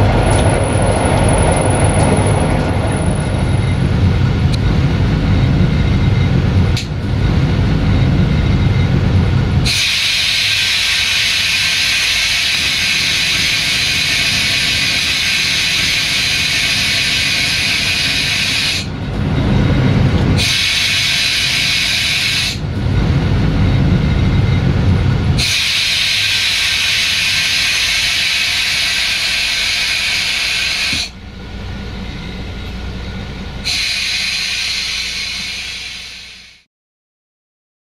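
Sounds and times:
diesel engine rumble: 0:00.0 - 0:36.7
air brakes hissing: 0:09.6 - 0:18.9, 0:20.4 - 0:22.6, 0:25.4 - 0:31.2, 0:33.6 - 0:36.7.

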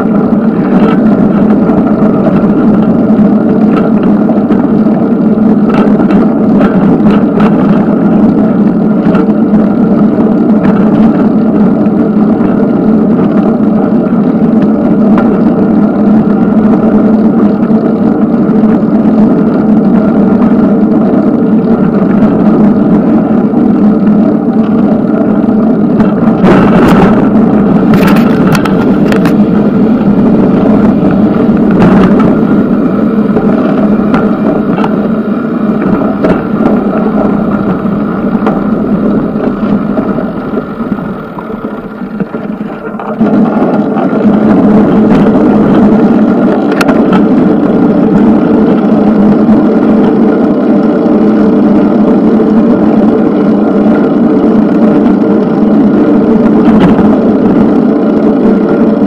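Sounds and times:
bicycle road rumble: 0:00.0 - 0:59.0
wind on camera: 0:00.0 - 0:59.0
bicycle knocking over bumps: 0:26.0 - 0:45.8.

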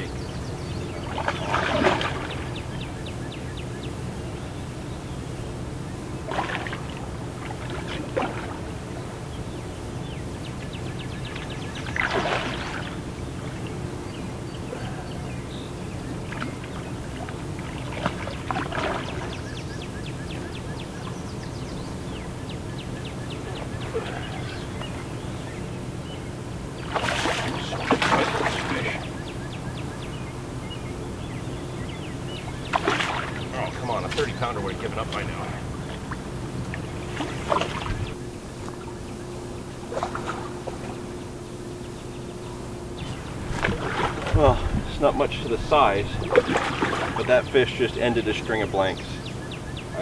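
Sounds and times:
fish splashing at water surface: 0:01.1 - 0:02.5, 0:06.3 - 0:08.7, 0:11.8 - 0:13.0, 0:17.2 - 0:19.4, 0:26.8 - 0:29.2, 0:32.7 - 0:34.5, 0:36.0 - 0:38.0, 0:43.5 - 0:44.8, 0:46.2 - 0:47.3.

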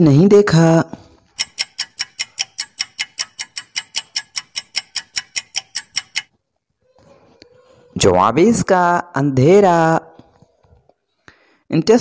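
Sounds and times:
rapid clock ticks: 0:01.2 - 0:06.3.

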